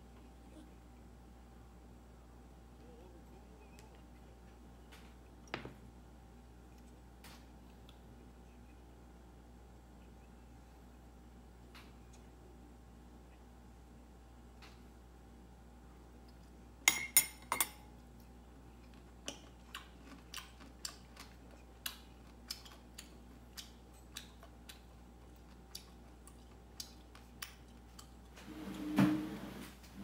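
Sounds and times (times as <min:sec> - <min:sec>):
metal fork clinking on ceramic bowl: 0:16.9 - 0:17.9.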